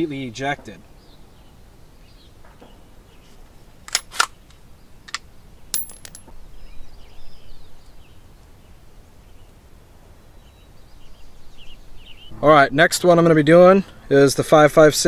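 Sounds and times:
gun action metallic clacks: 3.9s - 4.4s, 5.8s - 6.3s.

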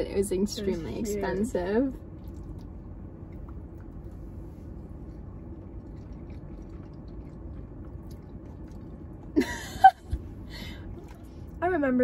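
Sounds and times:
car cabin hum: 0.0s - 12.0s
faint chewing: 2.1s - 9.4s.

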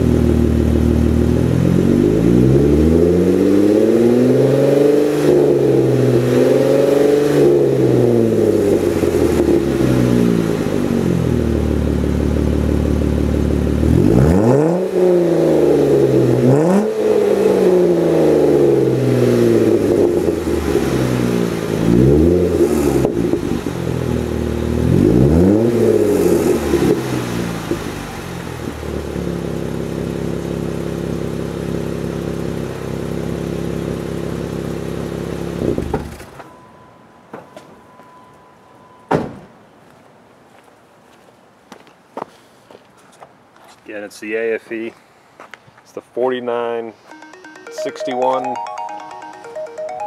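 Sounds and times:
engine revving: 0.0s - 11.4s, 13.6s - 23.3s.

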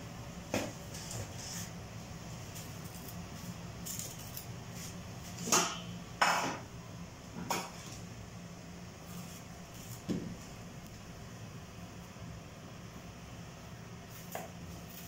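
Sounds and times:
low steady hum: 0.0s - 15.0s
kitchenware clinking and knocking: 5.5s - 6.6s.

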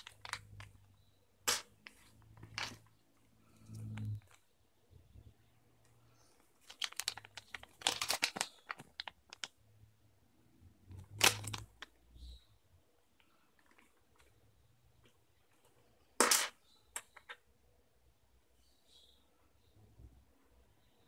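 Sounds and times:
paper crinkling: 0.0s - 0.8s, 6.6s - 9.5s, 11.0s - 11.9s.

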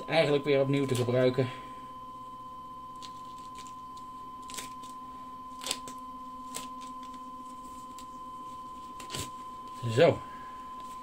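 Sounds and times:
high whine of rotating turntable: 0.0s - 3.0s, 3.6s - 11.0s.

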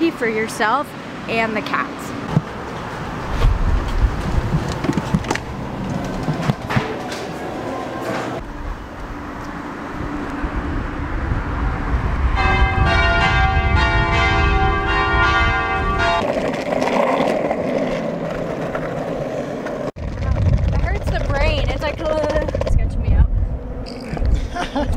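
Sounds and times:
skateboard wheels on pavement: 2.2s - 8.6s, 15.2s - 23.3s
church bells ringing: 12.4s - 16.2s.

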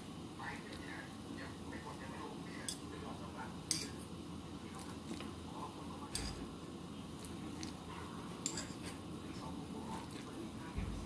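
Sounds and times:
cutlery clinking on bowl: 3.7s - 4.1s, 6.1s - 6.5s, 8.4s - 9.0s.

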